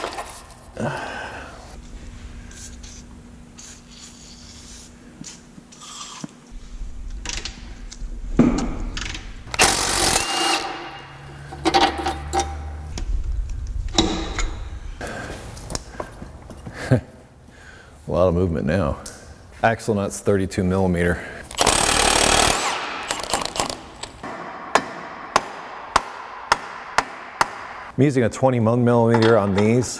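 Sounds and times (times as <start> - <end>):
ratchet on fasteners: 21.5 - 23.8
clatter of metal parts: 21.5 - 24.2.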